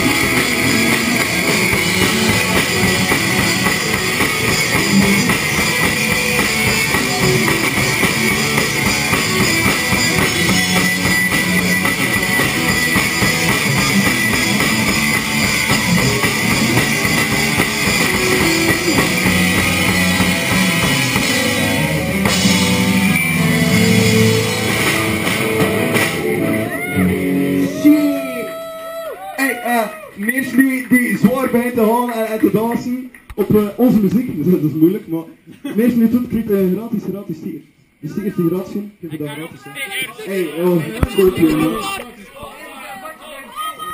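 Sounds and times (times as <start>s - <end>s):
drum kit: 0.0s - 28.5s
bass guitar: 0.0s - 28.6s
electric guitars: 0.0s - 29.2s.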